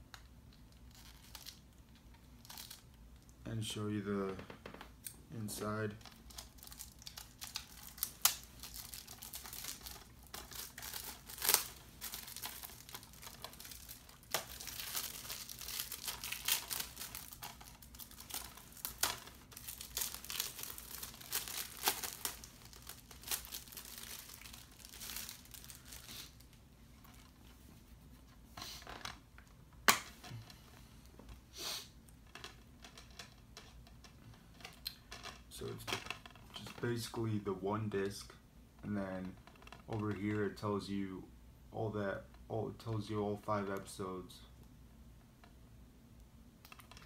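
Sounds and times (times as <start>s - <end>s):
shrink wrap crinkling: 0.1s - 3.4s, 4.2s - 27.5s, 31.9s - 38.3s.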